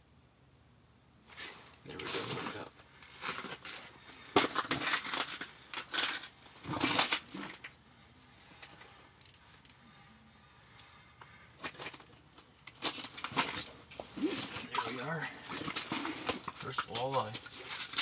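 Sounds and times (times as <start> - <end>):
crunching and knocking handling noises: 1.3 - 9.8, 10.7 - 18.0.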